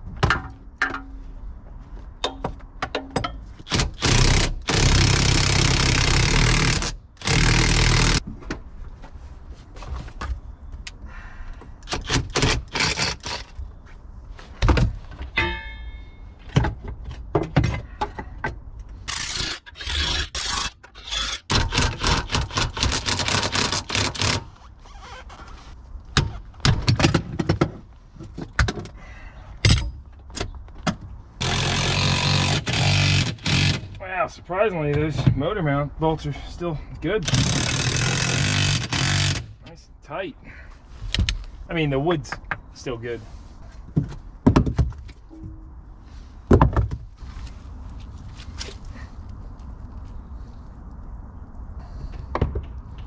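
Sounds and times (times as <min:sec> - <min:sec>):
metal tools clanking and scraping: 0:15.3 - 0:16.6.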